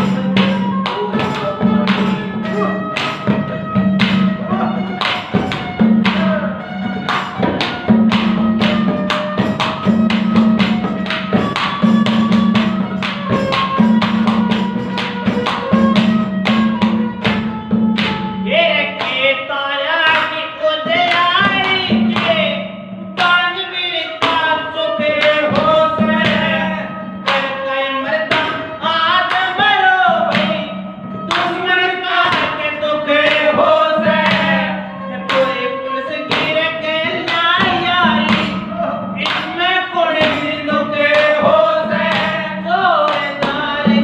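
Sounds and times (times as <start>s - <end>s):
ornamented high melody: 0.0s - 5.0s
harmonium melody: 0.0s - 20.0s, 22.2s - 43.8s
dholak drum rhythm: 0.0s - 44.0s.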